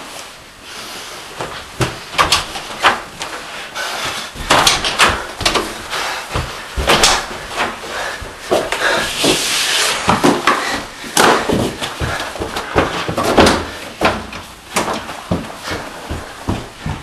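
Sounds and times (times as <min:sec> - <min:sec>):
doors opening and shutting: 0:04.4 - 0:05.9
sharp knocks and thuds: 0:04.4 - 0:08.7, 0:10.1 - 0:17.0.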